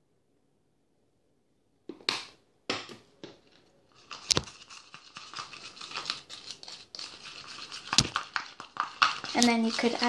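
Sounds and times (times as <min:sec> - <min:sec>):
scraping in plastic bowl: 0:03.9 - 0:10.0.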